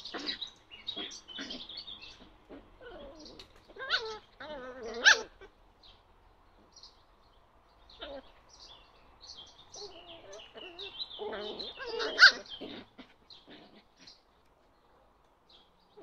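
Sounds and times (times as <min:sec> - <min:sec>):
puppies yelping and whining: 0:00.1 - 0:05.5, 0:09.8 - 0:14.1.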